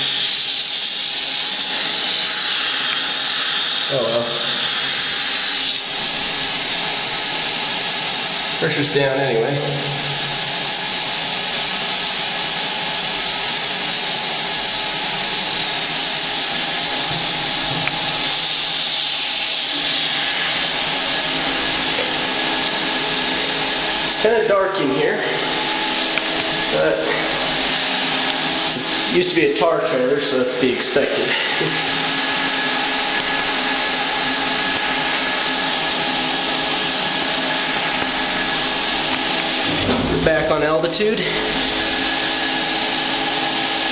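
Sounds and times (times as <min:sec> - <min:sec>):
steady motor whine: 0:00.0 - 0:43.9
vacuum cleaner rushing air: 0:00.0 - 0:43.9.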